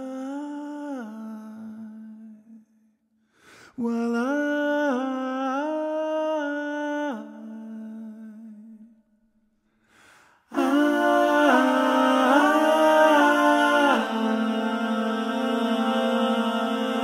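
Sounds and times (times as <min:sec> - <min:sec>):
person breathing: 0:03.2 - 0:03.8, 0:09.6 - 0:10.6
male vocal ensemble singing: 0:10.5 - 0:17.0
solo voice singing: 0:10.5 - 0:17.0.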